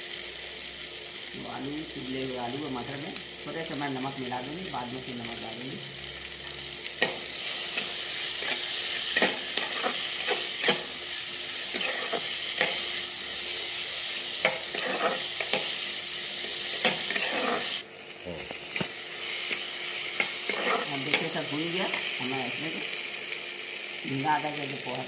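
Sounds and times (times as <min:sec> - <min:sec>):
food sizzling in oil: 0:00.0 - 0:25.0
metal spatula scraping pan: 0:07.8 - 0:10.9, 0:11.7 - 0:12.8, 0:14.4 - 0:15.7, 0:16.4 - 0:17.8, 0:20.2 - 0:21.3.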